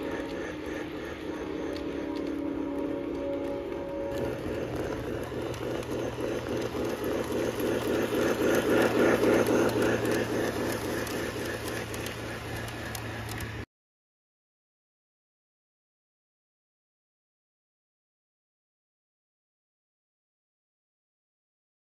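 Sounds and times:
model train running on track: 0:00.0 - 0:13.7.

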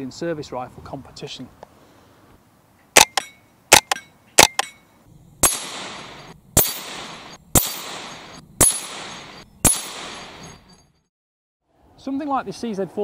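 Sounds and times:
rifle shots: 0:03.0 - 0:04.7, 0:05.4 - 0:10.6
bullet ringing steel target: 0:03.0 - 0:11.0.

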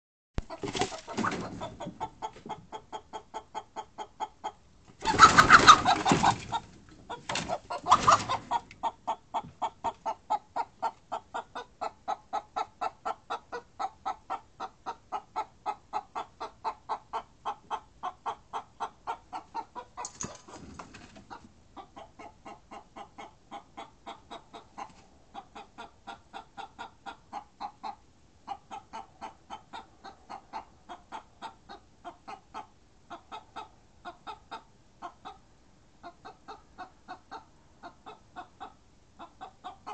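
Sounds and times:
hens alarm clucking: 0:00.4 - 0:35.4, 0:36.0 - 0:39.9.

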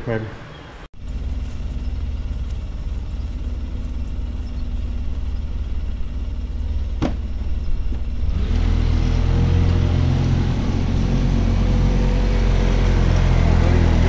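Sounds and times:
car engine idling: 0:01.0 - 0:14.0.

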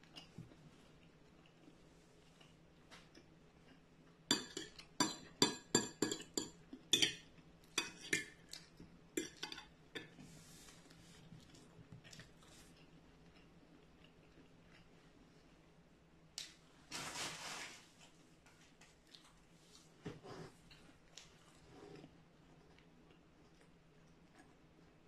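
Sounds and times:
fork clinking on a plate: 0:04.3 - 0:07.2.

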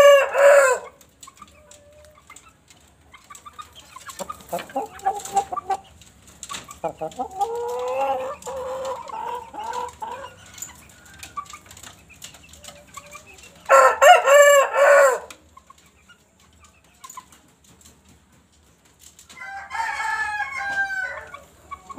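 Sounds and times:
rooster crowing: 0:00.0 - 0:00.9, 0:13.7 - 0:15.3, 0:19.4 - 0:21.4
drawn-out chicken call: 0:00.0 - 0:02.5, 0:03.1 - 0:15.7, 0:19.3 - 0:21.9
chicken clucking: 0:00.0 - 0:21.9.

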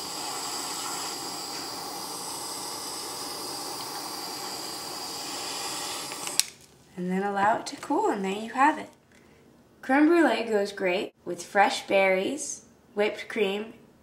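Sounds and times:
blowtorch flame hissing: 0:00.0 - 0:06.6
blowtorch click: 0:00.0 - 0:06.7.

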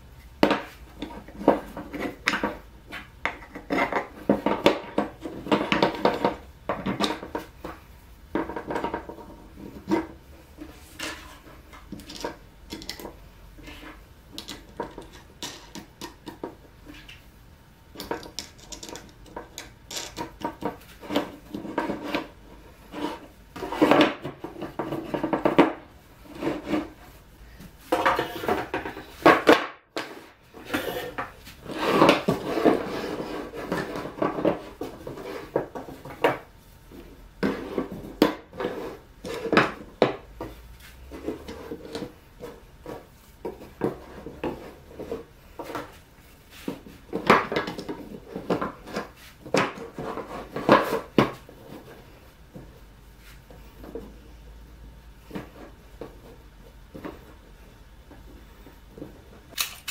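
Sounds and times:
wooden pieces knocking and clattering: 0:11.0 - 0:17.1, 0:17.9 - 0:22.3.

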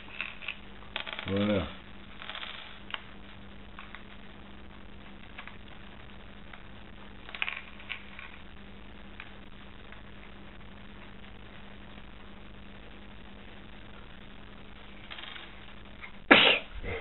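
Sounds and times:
plastic bricks clicking and clattering: 0:00.0 - 0:01.5, 0:07.2 - 0:08.4
low electrical hum: 0:00.0 - 0:17.0.

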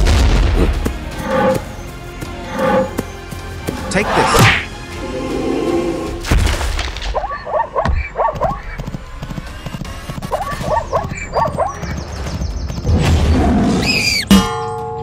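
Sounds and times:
background music: 0:00.0 - 0:15.0
galloping hoofbeats: 0:00.8 - 0:03.9, 0:07.2 - 0:12.9.

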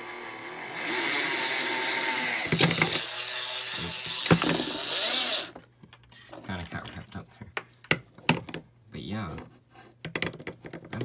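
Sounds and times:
electric motor whirring: 0:00.0 - 0:05.6
sharp knocks and rattles: 0:10.0 - 0:11.0.

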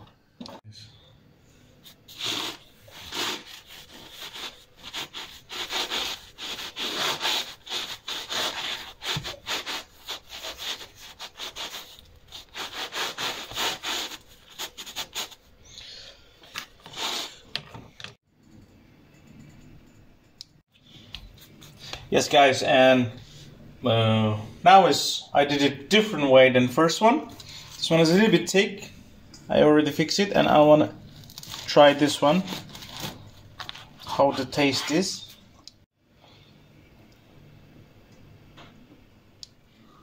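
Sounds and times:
knife sawing through bread: 0:02.1 - 0:15.4, 0:32.4 - 0:34.0.

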